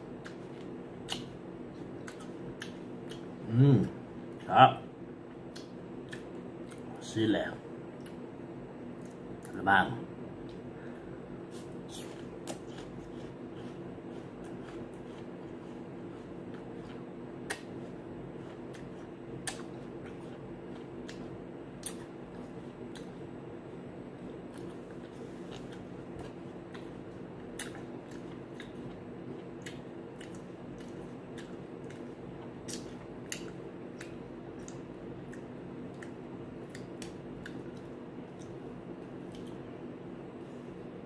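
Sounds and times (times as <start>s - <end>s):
steady low hum: 0.0s - 41.0s
apple crunching: 11.9s - 23.2s.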